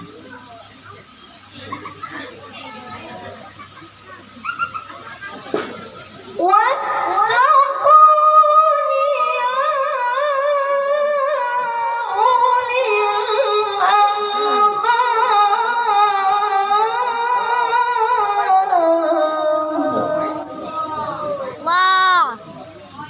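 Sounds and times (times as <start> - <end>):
boy reciting melodically into microphone: 6.3 - 22.4.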